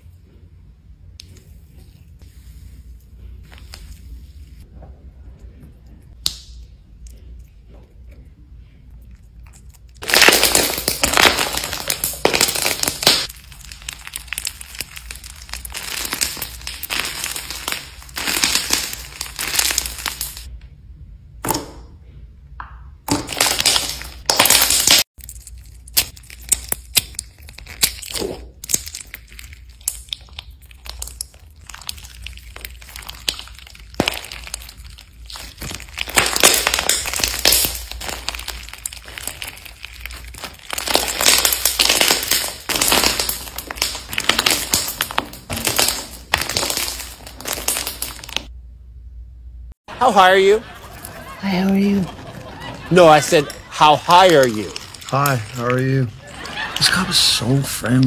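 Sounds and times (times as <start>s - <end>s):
hands kneading sticky slime: 9.3s - 20.5s, 23.1s - 48.5s
slime crackling: 9.4s - 20.5s, 23.1s - 48.5s, 50.8s - 58.0s.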